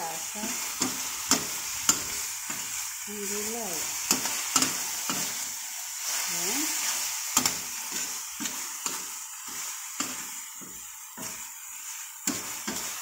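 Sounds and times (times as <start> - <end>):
food sizzling in a wok: 0.0 - 13.0
metal spatula scraping pan: 6.8 - 13.0.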